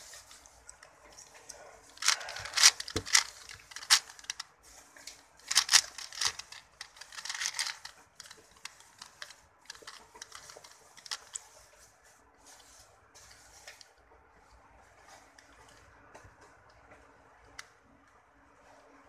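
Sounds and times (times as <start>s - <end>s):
puzzle cube clicking: 2.0s - 4.4s, 5.5s - 11.4s.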